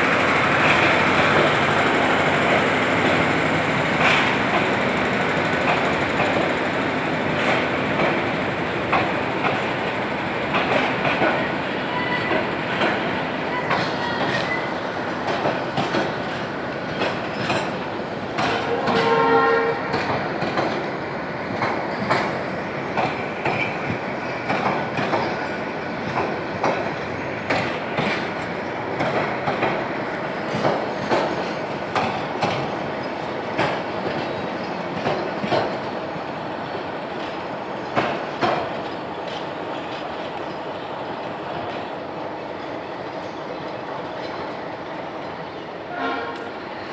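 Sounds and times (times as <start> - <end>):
train rumble: 0.0 - 46.9
train wheels clicking over rail joints: 0.0 - 46.9
train horn: 11.9 - 12.4, 18.5 - 20.0, 45.8 - 46.6.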